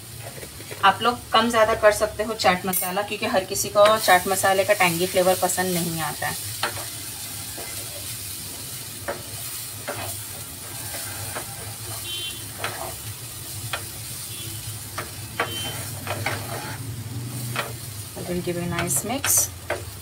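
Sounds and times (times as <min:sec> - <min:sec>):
food sizzling in pan: 0:00.0 - 0:20.0
spatula scraping and knocking pan: 0:06.6 - 0:08.2, 0:09.0 - 0:14.1, 0:14.8 - 0:16.8, 0:17.4 - 0:17.9, 0:18.6 - 0:20.0.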